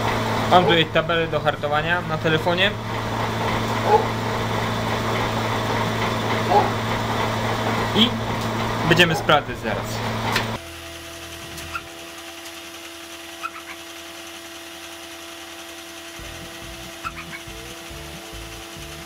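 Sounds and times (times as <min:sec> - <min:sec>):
forge motor hum: 0:00.0 - 0:19.0.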